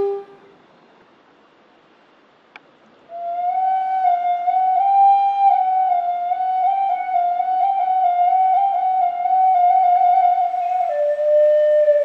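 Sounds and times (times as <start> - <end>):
flute long note: 0.0 - 0.6, 3.1 - 12.0.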